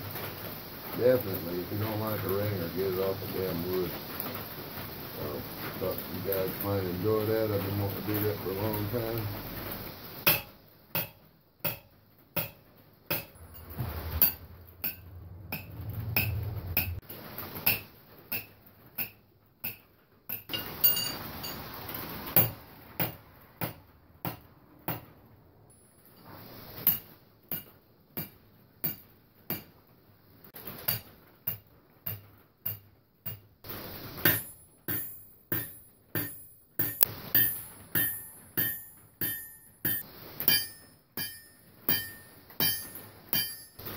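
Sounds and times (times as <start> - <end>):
hammer striking ringing anvil: 34.3 - 43.8.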